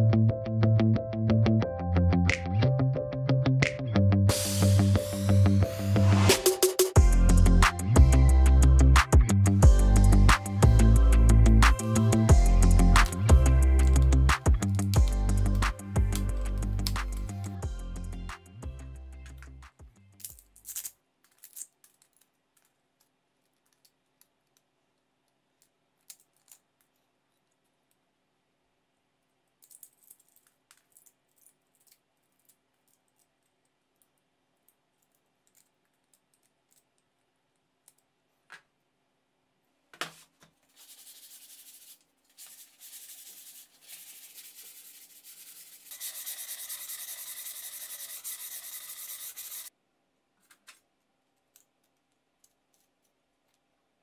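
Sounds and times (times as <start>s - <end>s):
rubbing or scraping: 40.0s - 49.7s.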